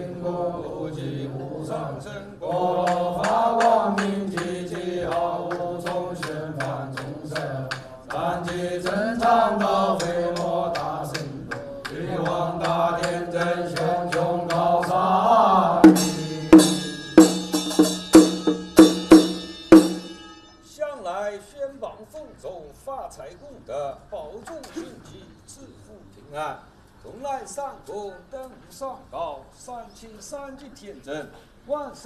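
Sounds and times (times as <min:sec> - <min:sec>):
liturgical chanting: 0:00.0 - 0:18.6
sharp percussion clicks: 0:02.8 - 0:15.0, 0:15.8 - 0:20.4
ringing struck percussion: 0:15.8 - 0:21.0.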